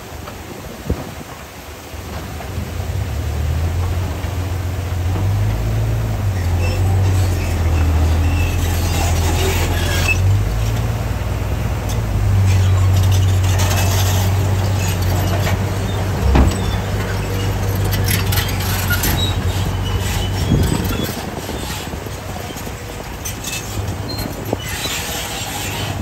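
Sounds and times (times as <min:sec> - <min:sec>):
heavy diesel engines running: 0:01.6 - 0:26.0
soil and stone pouring: 0:02.3 - 0:26.0
low thud: 0:16.2 - 0:17.0.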